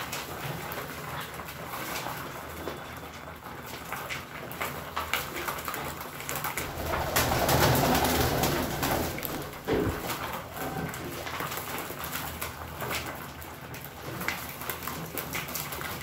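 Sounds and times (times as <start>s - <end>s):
beaks pecking a tray: 0.0s - 16.0s
wings flapping: 6.2s - 13.1s
pigeons cooing: 6.6s - 11.8s.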